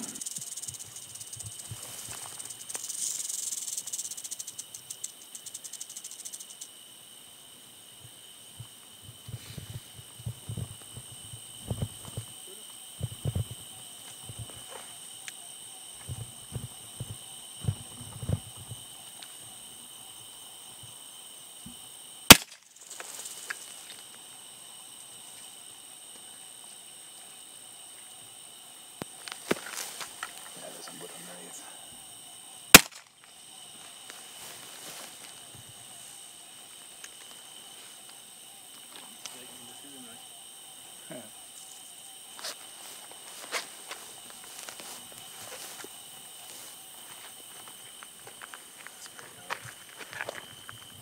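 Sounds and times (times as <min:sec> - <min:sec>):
rattlesnake tail rattling: 0:00.0 - 0:51.0
sharp gunshot: 0:22.3 - 0:22.6, 0:32.8 - 0:33.0.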